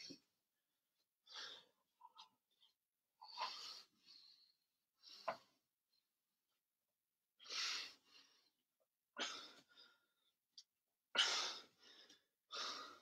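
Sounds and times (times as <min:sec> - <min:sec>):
man breathing hard: 0:11.2 - 0:13.0.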